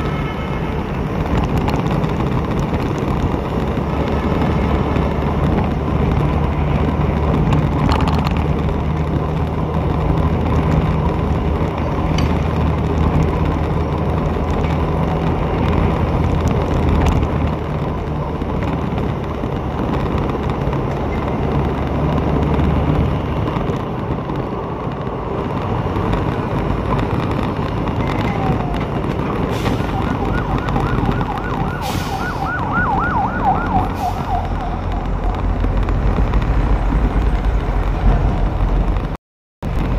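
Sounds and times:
traffic and engine noise: 0.0 - 39.9
warbling siren: 28.0 - 35.7.

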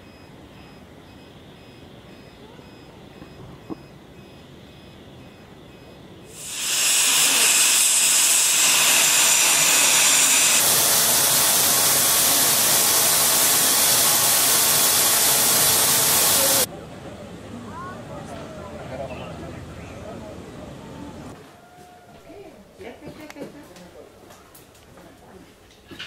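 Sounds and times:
steam locomotive hissing steam: 6.3 - 16.7.

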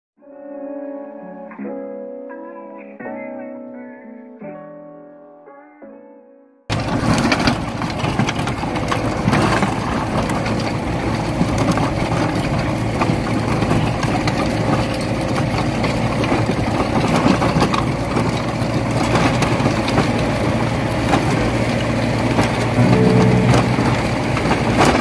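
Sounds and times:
tractor engine running: 6.7 - 25.0.

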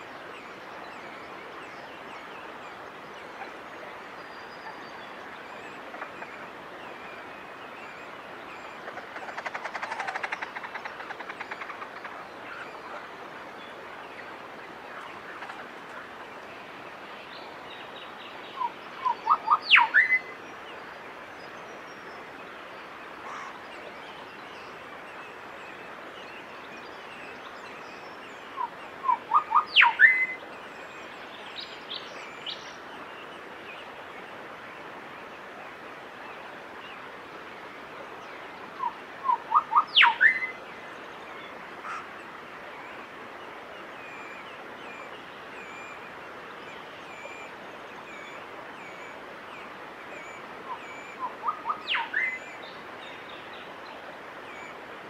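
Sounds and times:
bird singing: 0.0 - 34.3, 38.0 - 54.8
faint steady hiss: 0.0 - 55.0.

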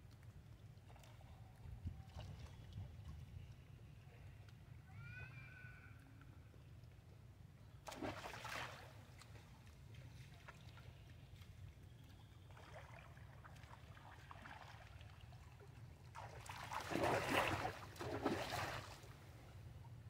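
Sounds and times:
pool water splashing: 7.8 - 9.4, 12.4 - 19.6.

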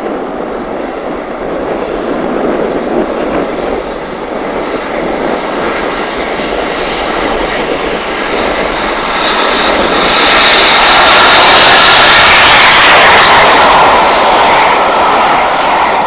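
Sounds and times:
steam locomotive roar: 0.0 - 16.0.

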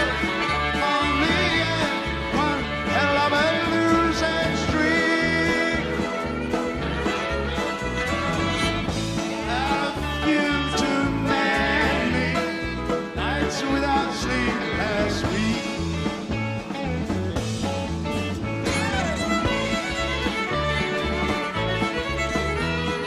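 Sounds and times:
man singing: 0.0 - 6.3, 9.2 - 16.2
fiddle: 0.0 - 23.0
live rock band playing: 0.0 - 23.0.

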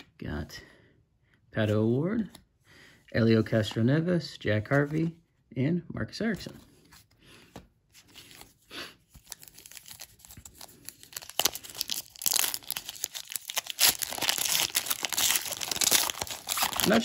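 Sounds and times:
wrapper tearing and crinkling: 9.2 - 17.0.

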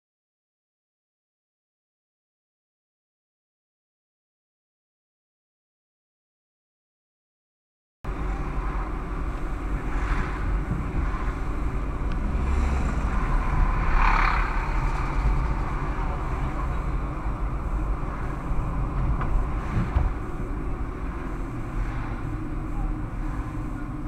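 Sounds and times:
traffic noise: 8.0 - 24.0
car engine and road rumble: 8.1 - 24.0.

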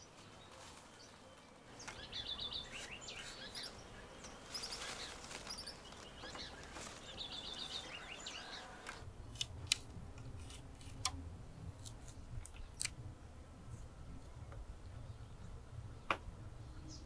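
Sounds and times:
bird chirping: 0.0 - 9.4.

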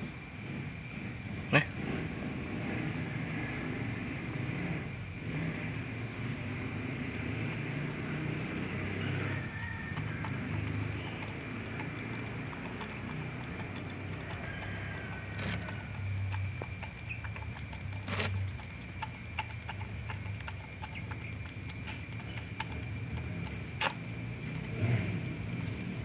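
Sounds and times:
baby monkey sucking bottle: 7.0 - 25.0.

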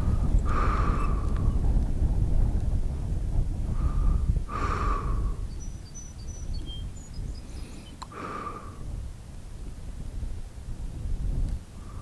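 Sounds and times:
wind rumbling on microphone: 0.0 - 12.0
short breathy bursts: 3.7 - 5.5, 7.4 - 8.9
faint bird chirps: 5.5 - 8.1.

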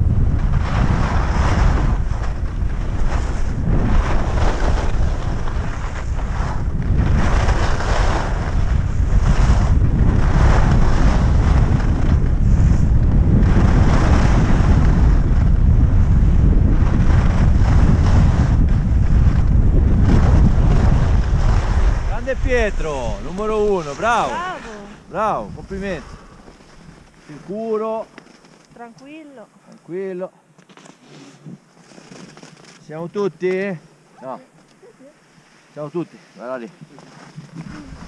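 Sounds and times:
wind rushing over microphone: 0.0 - 28.1, 37.4 - 38.0
skis scraping on packed snow: 0.4 - 28.8, 35.2 - 38.0.

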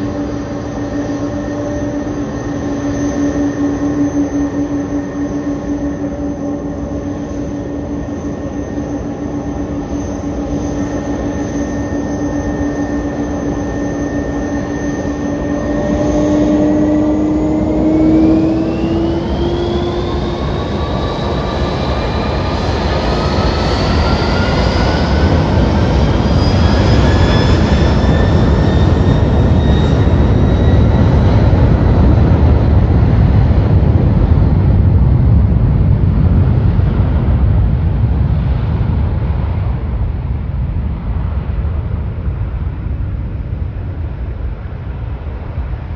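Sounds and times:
jet engines whining: 0.0 - 45.9
broad low roar: 15.1 - 20.8.

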